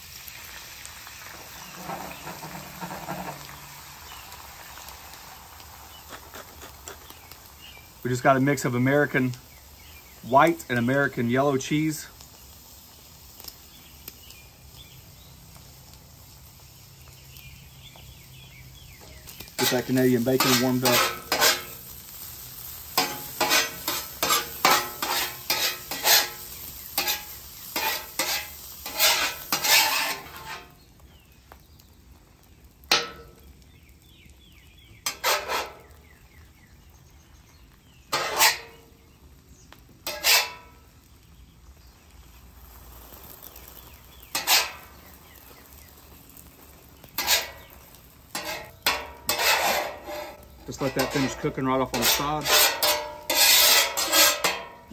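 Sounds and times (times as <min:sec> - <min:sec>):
faint frying sizzle: 0:00.0 - 0:54.9
metal spatula scraping on griddle: 0:01.2 - 0:12.3, 0:18.9 - 0:30.9, 0:32.8 - 0:33.5, 0:34.9 - 0:36.2, 0:37.8 - 0:39.2, 0:40.0 - 0:41.2, 0:42.3 - 0:54.9.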